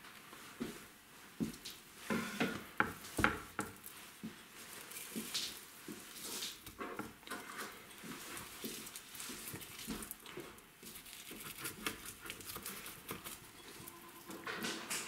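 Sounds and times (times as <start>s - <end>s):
knife scraping wet meat: 10.8s - 14.3s.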